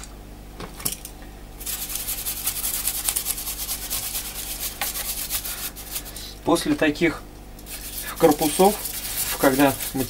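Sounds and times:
brush scrubbing circuit board: 0:01.6 - 0:06.1, 0:07.6 - 0:10.0.

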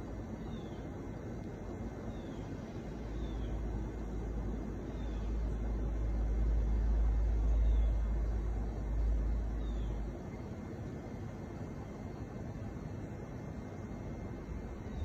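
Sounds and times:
outdoor hiss: 0:00.0 - 0:15.0.

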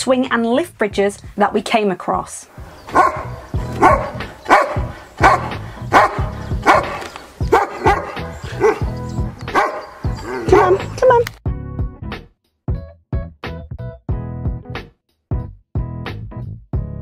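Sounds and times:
background music: 0:00.0 - 0:17.0
dog barking: 0:02.9 - 0:11.0.

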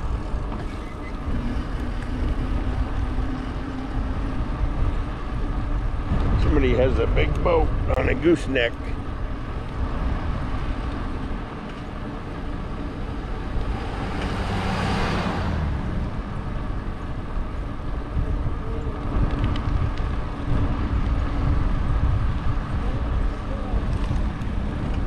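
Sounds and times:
pickup truck passing: 0:00.0 - 0:18.0
wind rumble on microphone: 0:00.0 - 0:25.0.

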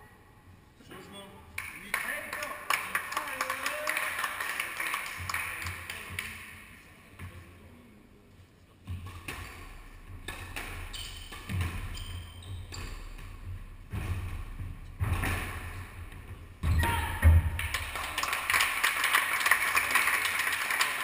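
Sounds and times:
ball hitting court walls: 0:08.8 - 0:18.0
rackets striking squash ball: 0:08.8 - 0:18.0.

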